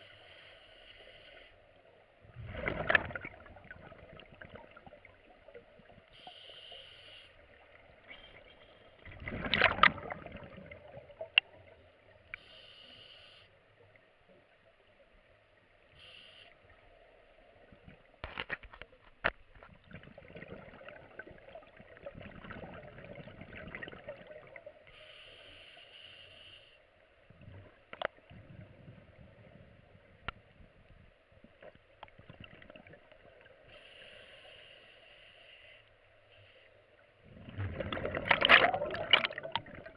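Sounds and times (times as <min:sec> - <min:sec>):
regulator inhalation hiss: 0:00.0 - 0:01.8, 0:06.1 - 0:07.6, 0:12.4 - 0:13.7, 0:15.9 - 0:17.1, 0:24.9 - 0:27.0, 0:33.6 - 0:37.0
exhaled bubbles gurgling: 0:02.3 - 0:06.1, 0:07.5 - 0:12.2, 0:19.8 - 0:24.8, 0:32.0 - 0:33.5, 0:37.2 - 0:39.9.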